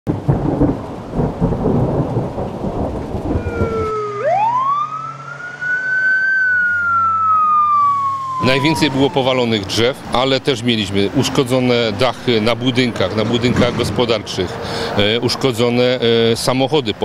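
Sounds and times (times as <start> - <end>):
rolling thunder: 0.1 - 4.4, 12.2 - 14.4
rain: 0.1 - 7.2, 7.8 - 17.0
emergency siren wailing: 3.2 - 10.5.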